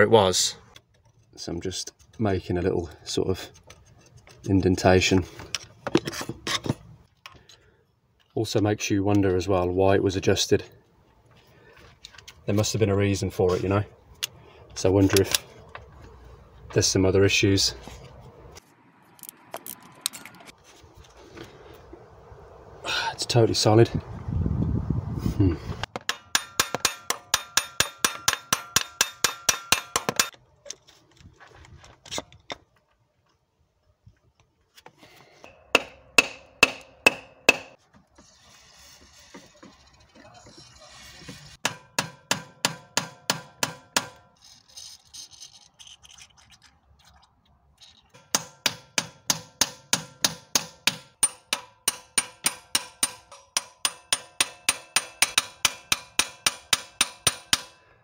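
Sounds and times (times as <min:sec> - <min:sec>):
hammer striking metal: 0:25.9 - 0:30.3, 0:35.4 - 0:37.8, 0:41.6 - 0:44.3, 0:48.2 - 0:57.8.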